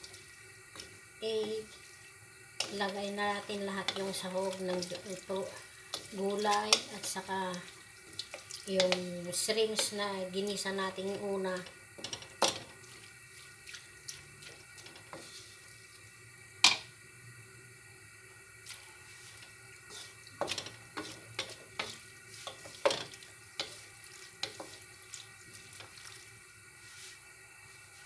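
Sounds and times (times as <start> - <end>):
wooden spatulas scraping a wok: 3.8 - 5.0, 12.0 - 12.7, 14.8 - 15.6, 19.1 - 26.2.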